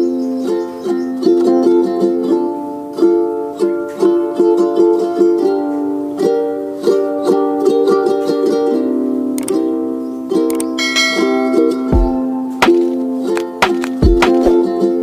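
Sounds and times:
plucked-string tune: 0.0s - 15.0s.

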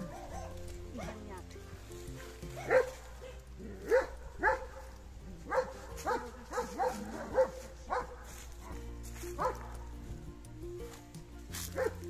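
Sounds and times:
dog barking: 0.0s - 1.2s, 2.2s - 8.8s, 9.4s - 9.8s, 11.7s - 12.0s.

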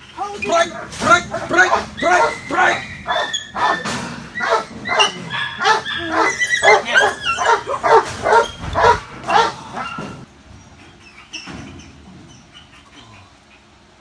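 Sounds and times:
puppy barking in high yips: 0.7s - 10.0s.

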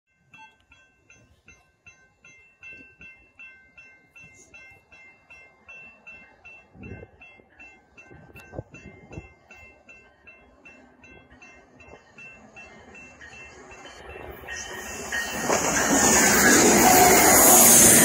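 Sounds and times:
level crossing warning bell: 0.1s - 18.0s.

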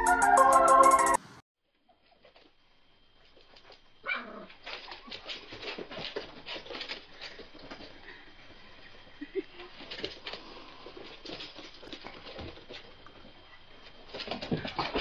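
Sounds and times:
dog paws pattering: 4.6s - 8.0s.

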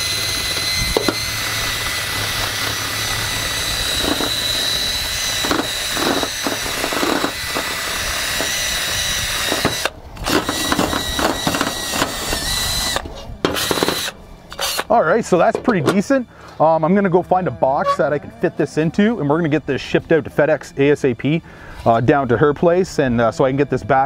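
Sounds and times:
brush wheel scrubbing metal: 0.0s - 8.7s
drill whine: 0.0s - 14.9s.

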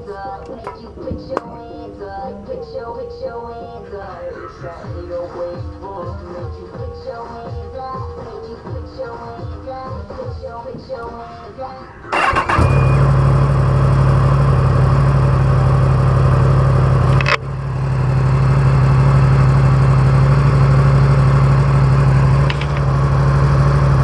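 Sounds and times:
motorcycle engine idling: 12.1s - 24.0s.

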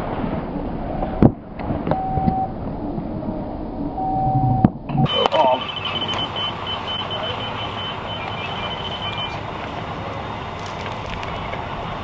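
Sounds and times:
city traffic noise: 0.0s - 12.0s
short high-pitched electronic beeps: 4.0s - 9.4s.

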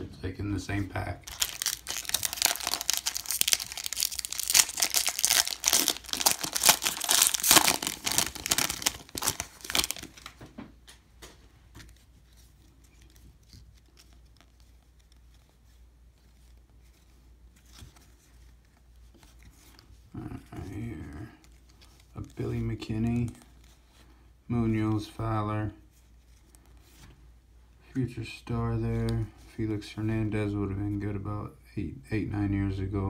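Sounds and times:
faint rustles of cards handled: 0.0s - 31.5s
foil wrapper crinkling and tearing: 1.2s - 10.4s.

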